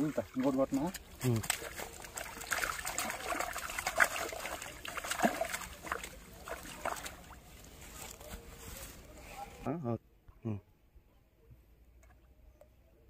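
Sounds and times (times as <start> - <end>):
fish thrashing in water: 0.0 - 8.2
water splashing and dribbling: 0.0 - 9.1.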